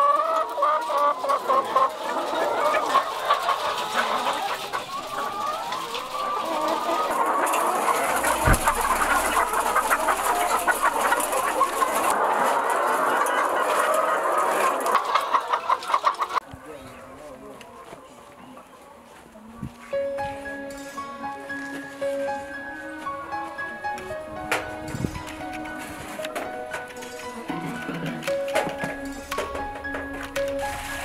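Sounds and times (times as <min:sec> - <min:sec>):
chickens clucking: 0:00.0 - 0:31.0
shovel knock: 0:08.3 - 0:10.7.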